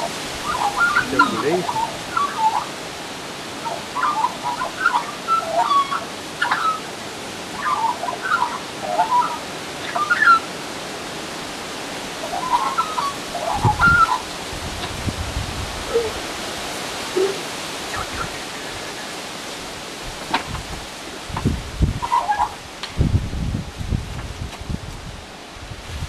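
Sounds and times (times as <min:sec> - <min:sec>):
magpie warbling song: 0:00.4 - 0:02.7.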